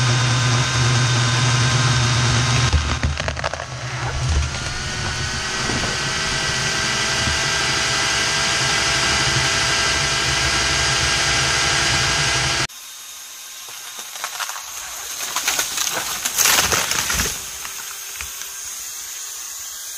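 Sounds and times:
chainsaw running at high revs: 0.0s - 19.9s
rushes of noise: 2.9s - 9.1s.

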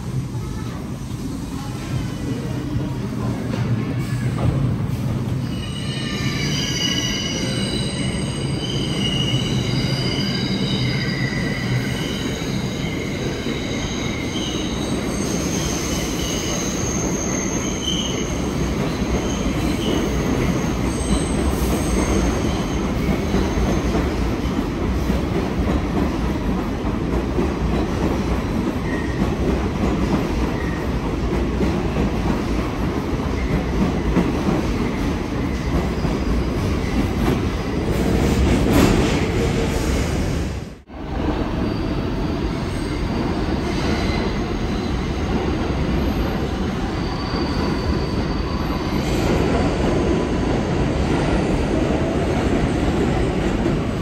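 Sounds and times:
train rumble on rails: 0.0s - 54.0s
train wheels squealing: 5.4s - 24.2s, 41.5s - 49.9s.

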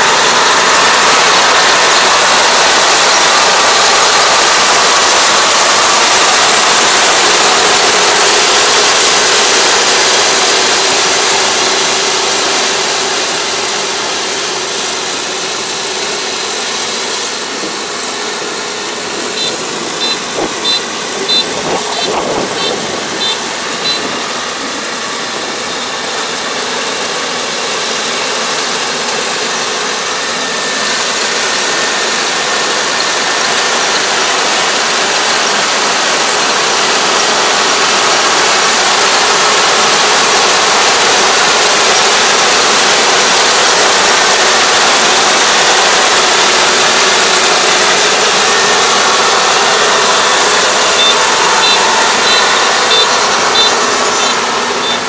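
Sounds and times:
combine harvester running: 0.0s - 55.0s
short high beeps: 19.3s - 24.2s, 50.8s - 55.0s.

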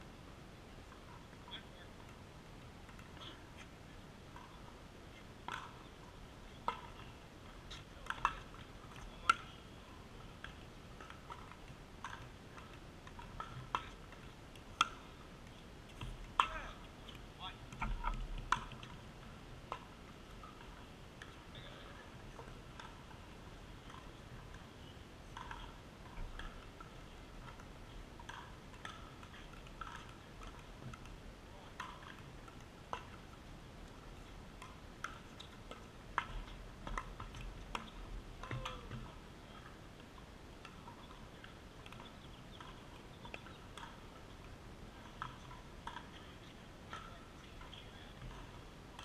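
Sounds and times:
paddles hitting plastic ball: 5.5s - 5.8s, 34.6s - 39.7s.

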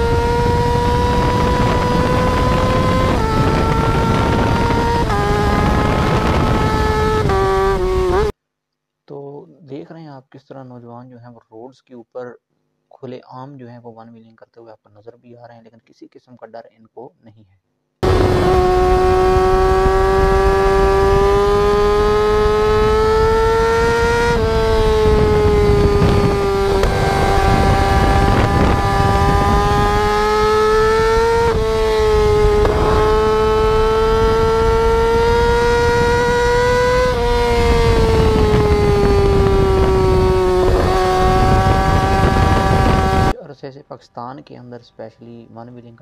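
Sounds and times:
small motorcycle engine revving high: 0.0s - 8.3s, 18.0s - 43.4s.

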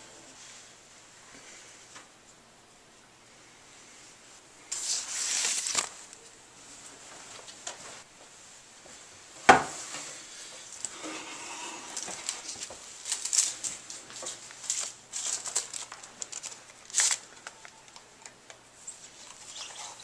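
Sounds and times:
rustling handling noise: 4.7s - 11.0s, 11.8s - 20.0s.

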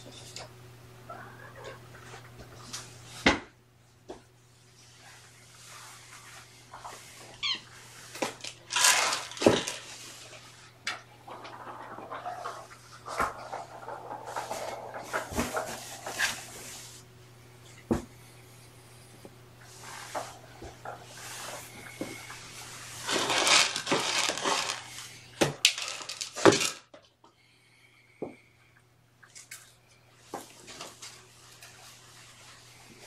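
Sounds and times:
steady low hum: 0.0s - 23.4s.

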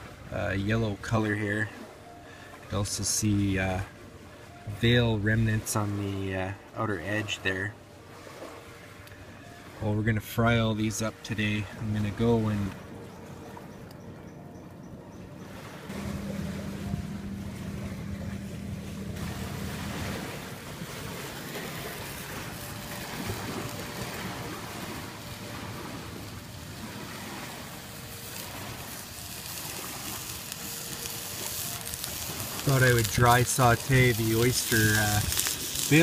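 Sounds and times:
rushing wind hiss: 21.2s - 36.0s.

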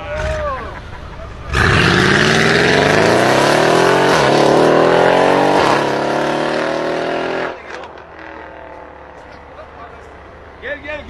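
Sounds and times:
car engine revving hard: 1.5s - 8.5s.

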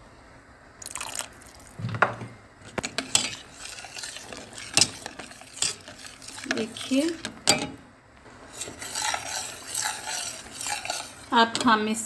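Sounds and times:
spoon stirring soup in a pot: 2.6s - 11.8s.

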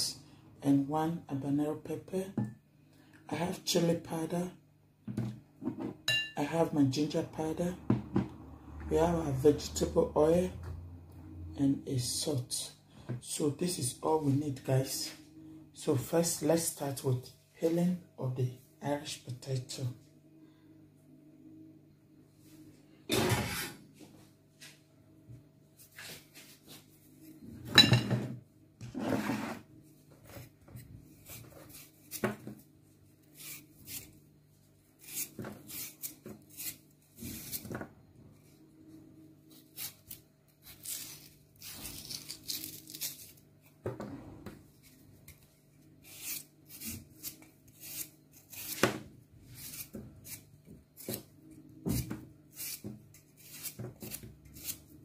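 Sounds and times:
knife peeling potato: 30.2s - 34.3s, 34.9s - 38.6s, 39.4s - 43.8s, 44.7s - 55.0s.

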